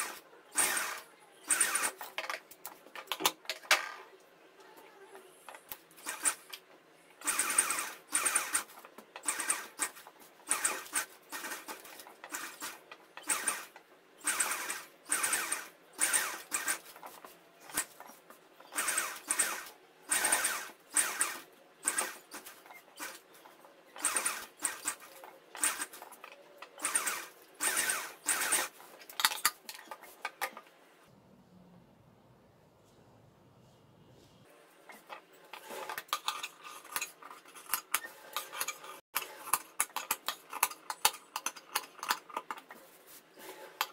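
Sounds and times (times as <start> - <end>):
sewing machine stitching: 0.0 - 2.3, 7.2 - 23.4, 24.0 - 29.8.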